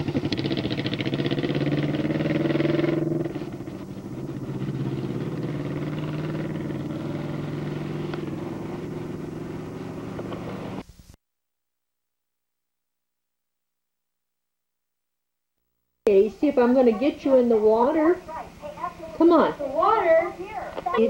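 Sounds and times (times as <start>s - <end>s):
motorcycle engine accelerating: 0.0s - 10.8s.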